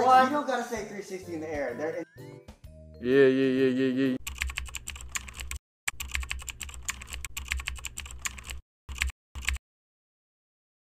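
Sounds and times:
keyboard typing: 4.2 - 9.6.

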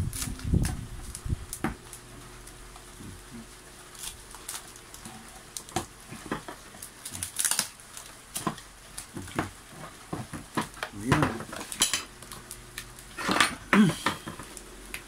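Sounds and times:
plastic rustling and crinkling: 0.0 - 15.0.

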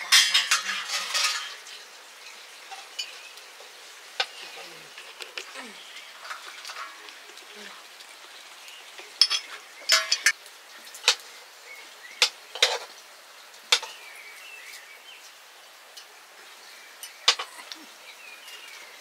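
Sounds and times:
metal utensils clinking on dishes: 0.0 - 7.5, 9.0 - 10.4, 12.2 - 13.0, 13.7 - 14.0, 17.0 - 17.8.

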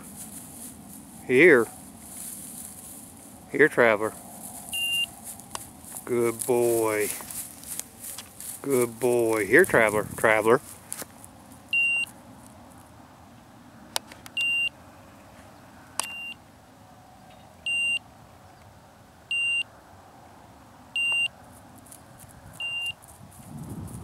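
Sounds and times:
short high beeps: 4.7 - 5.1, 11.7 - 12.1, 14.4 - 14.7, 16.0 - 16.4, 17.3 - 18.0, 21.0 - 21.3, 22.6 - 23.0.

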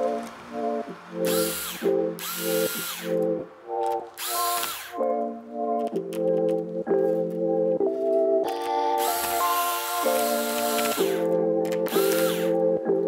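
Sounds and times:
background music: 0.0 - 13.0
electric screwdriver motor whine: 1.2 - 3.3, 4.2 - 5.0, 9.0 - 12.6.

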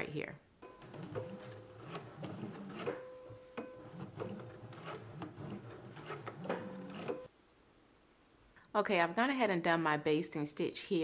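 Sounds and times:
sewing machine motor humming: 0.6 - 7.3
needle-stroke clicks: 0.7 - 7.3.

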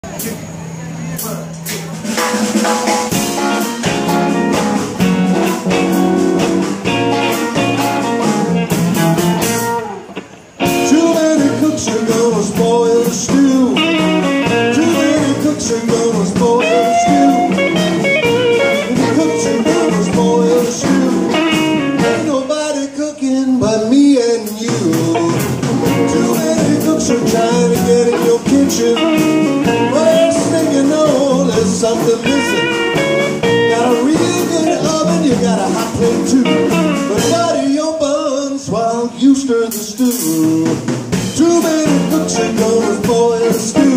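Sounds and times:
blues band playing: 1.2 - 22.9, 23.6 - 43.9
man singing: 10.6 - 43.9.

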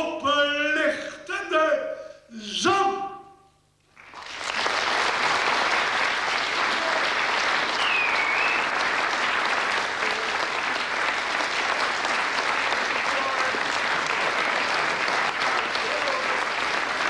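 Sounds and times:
audience applauding: 3.9 - 17.0
high whistle: 7.7 - 8.8.

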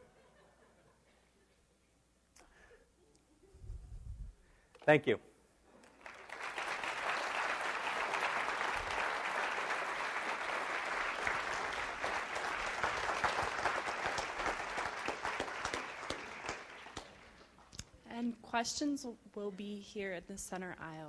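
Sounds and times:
audience applauding: 5.8 - 17.6.

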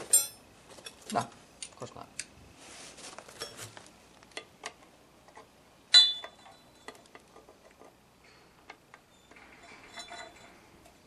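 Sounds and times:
sharp metal clank: 0.0 - 0.4, 5.9 - 7.0
hand tools clinking against metal: 0.0 - 1.8, 5.9 - 7.5, 9.2 - 11.0.

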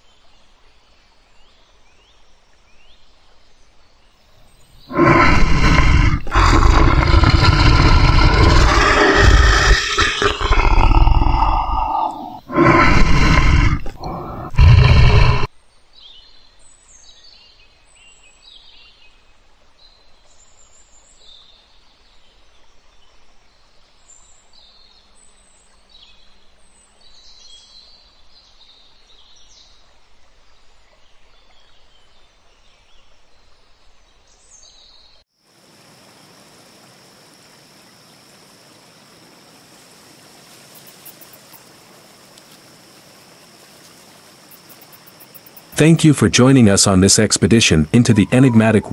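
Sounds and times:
steady hiss: 4.4 - 15.5, 35.5 - 48.9
tiger roaring: 4.8 - 15.5, 45.7 - 48.9.

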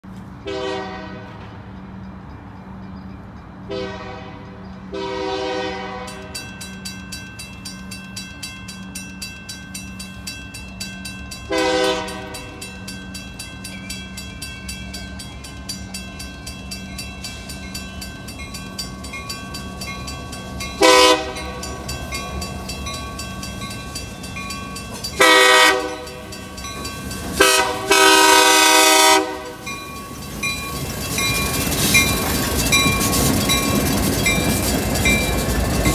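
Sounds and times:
train rumble: 0.0 - 35.9
crossing bell ringing: 0.3 - 35.9
locomotive horn blasts: 0.4 - 1.6, 3.7 - 6.4, 11.5 - 12.6, 20.8 - 21.7, 25.2 - 26.3, 27.4 - 29.7.

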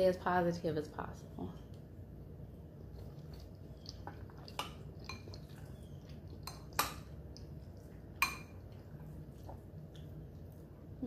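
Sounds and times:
spoon clinking on glass bowl: 8.2 - 8.6.

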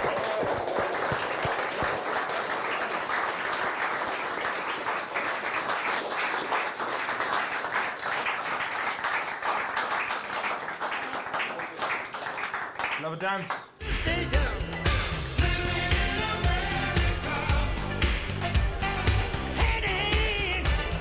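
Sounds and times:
crowd applauding: 0.0 - 13.8.

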